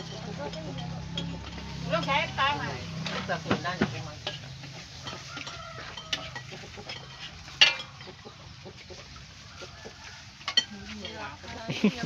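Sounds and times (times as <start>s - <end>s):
utensils and pots knocking: 0.0s - 8.3s.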